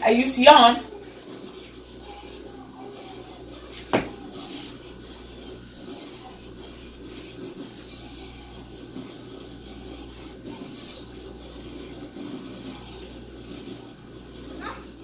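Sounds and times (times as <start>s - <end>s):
steady low hum: 0.0s - 15.0s
hands rubbing hair: 3.6s - 13.8s.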